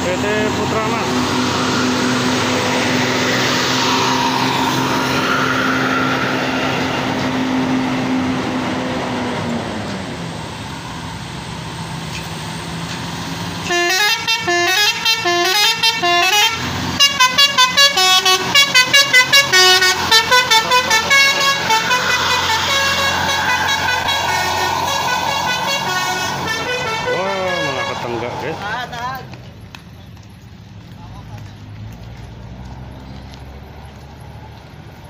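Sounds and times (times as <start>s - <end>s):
diesel engine running: 0.0s - 35.0s
multi-tone bus horn melody: 13.6s - 28.6s.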